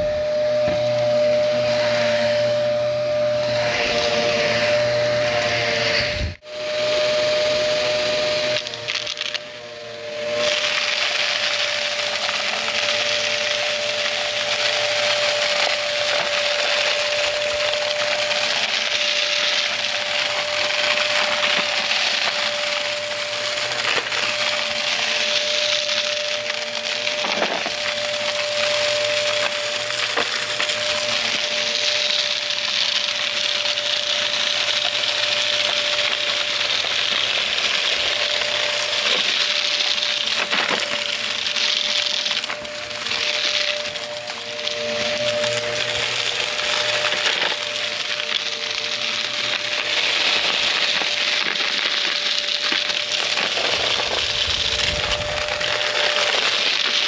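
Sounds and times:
vacuum cleaner motor whine: 0:00.0 - 0:57.0
debris crackling through vacuum: 0:49.2 - 0:57.0.

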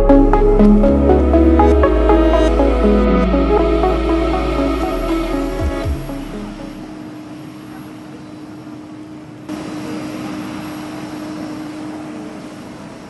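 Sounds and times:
jet airliner hum and whine: 0:06.2 - 0:13.0.

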